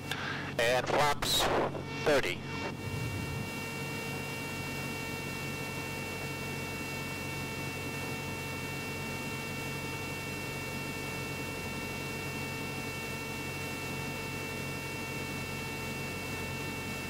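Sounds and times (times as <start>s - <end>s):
small plane cabin drone: 0.0s - 17.0s
thin high tones humming: 1.7s - 4.2s.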